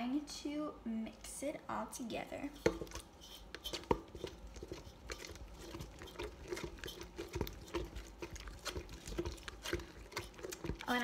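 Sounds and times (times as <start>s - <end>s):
spatula scraping metal bowl: 2.4s - 11.0s
spatula squelching in glue: 2.5s - 11.0s.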